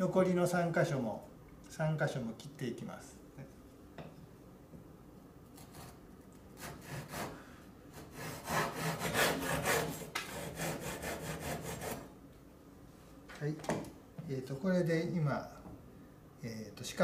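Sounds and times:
hand saw cutting wood: 6.6s - 12.1s.

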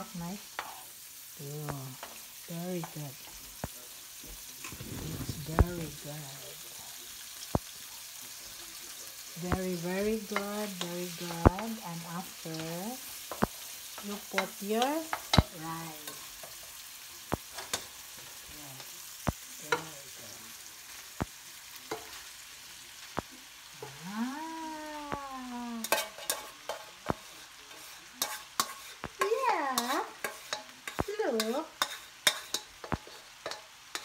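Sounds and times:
food sizzling in a wok: 0.0s - 34.0s
spatula clacking against pan: 13.2s - 15.5s, 25.8s - 34.0s.

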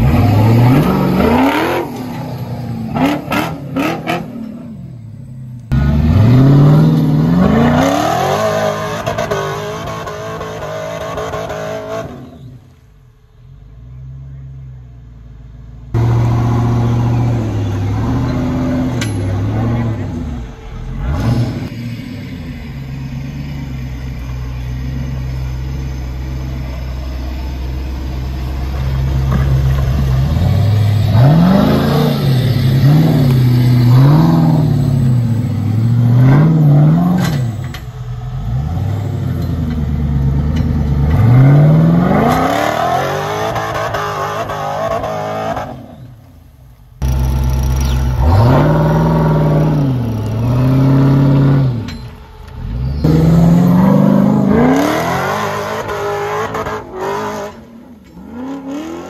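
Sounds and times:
truck engine revving hard: 0.0s - 5.0s, 5.7s - 12.6s, 16.0s - 23.8s, 29.1s - 46.2s, 47.0s - 52.0s, 52.6s - 59.0s.

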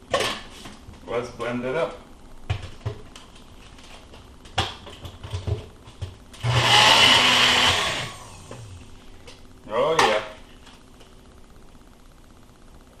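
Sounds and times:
cup blender whizzing: 6.4s - 8.8s.

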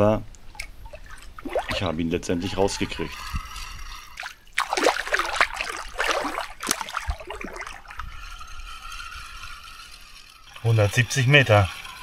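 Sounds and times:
water bubbling: 0.3s - 8.3s
water splashing and sloshing: 0.3s - 12.0s.

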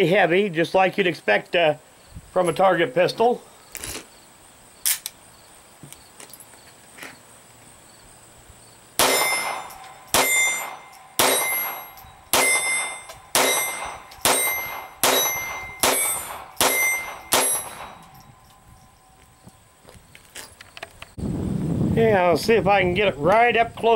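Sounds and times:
pistol shots with metallic ring: 9.0s - 19.2s.

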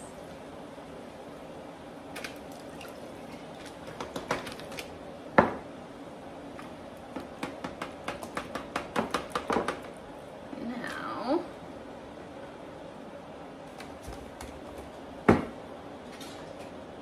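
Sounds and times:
liquid sloshing: 2.1s - 5.0s.

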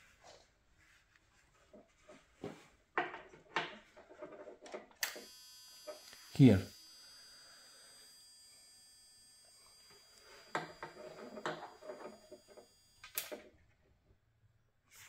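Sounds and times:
sharp click: 5.0s - 5.3s
high-pitched electrical whine: 5.0s - 13.5s.

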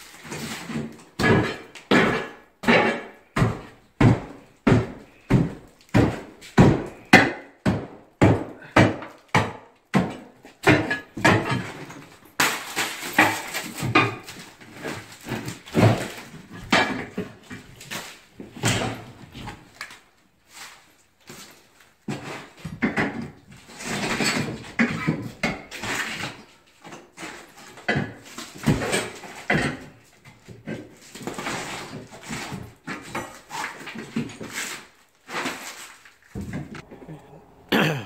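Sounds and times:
hammer breaking tile: 0.7s - 14.3s
debris crumbling and clattering: 10.6s - 19.8s.

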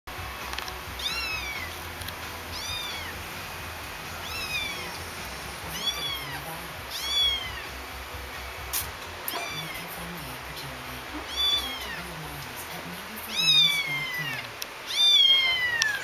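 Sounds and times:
kitten meowing: 1.0s - 1.8s, 2.5s - 3.2s, 4.2s - 5.0s, 5.7s - 7.7s, 9.3s - 9.9s, 11.2s - 12.0s, 13.3s - 16.0s.

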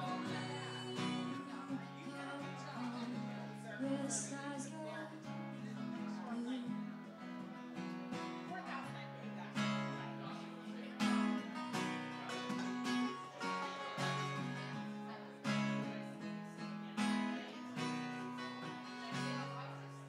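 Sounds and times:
acoustic guitar strumming chords: 0.0s - 20.0s.

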